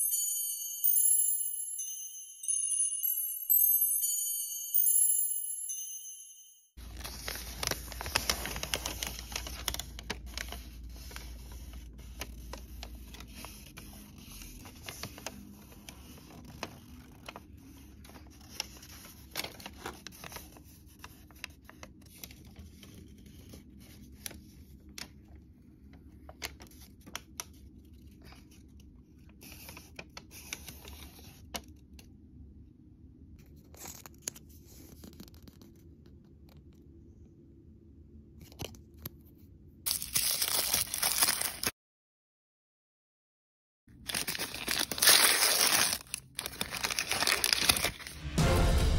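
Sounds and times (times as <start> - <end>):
paper rustling and crinkling: 6.8 - 25.4, 39.9 - 41.7, 44.0 - 48.4.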